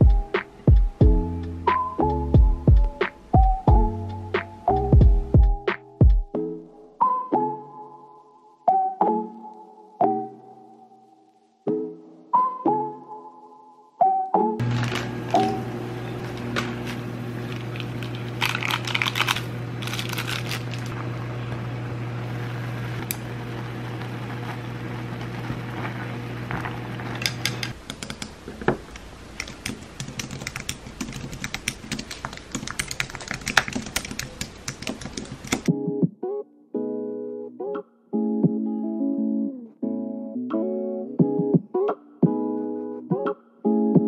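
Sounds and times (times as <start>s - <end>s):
steady low hum: 14.6s - 35.7s
water boiling in a pot: 20.6s - 27.8s
typing on a computer keyboard: 29.4s - 35.7s.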